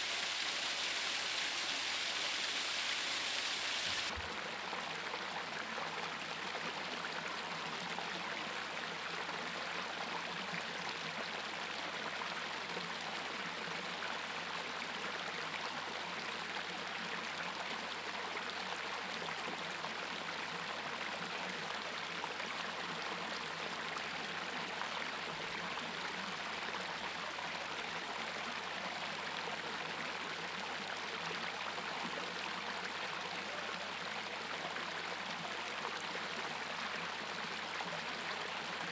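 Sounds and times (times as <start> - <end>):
small cascade rushing: 0.0 - 4.2.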